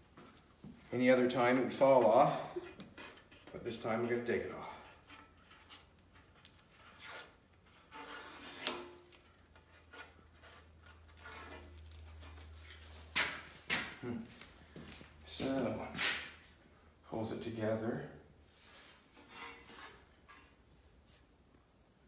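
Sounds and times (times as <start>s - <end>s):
tape peeling off metal: 5.0s - 14.0s.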